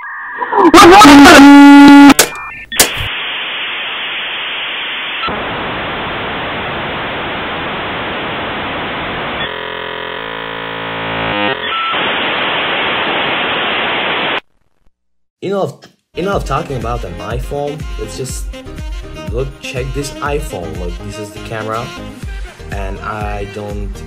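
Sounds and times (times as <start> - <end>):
glitchy buzzing tones: 0.0 - 3.1, 7.6 - 14.3
loud distorted beep: 0.0 - 3.1
static hiss: 1.4 - 9.5, 11.6 - 14.4.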